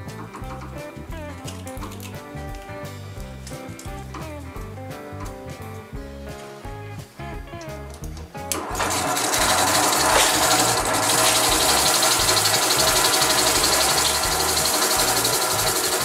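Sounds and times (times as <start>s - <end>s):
drill press motor hum: 8.5s - 16.0s.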